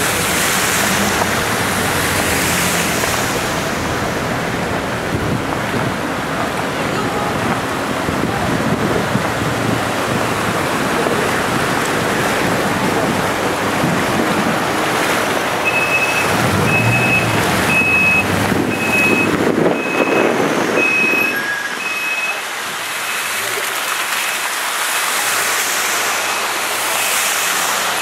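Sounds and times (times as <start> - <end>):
floodwater rushing along street: 0.0 - 28.0
high repeating beep: 15.7 - 20.2.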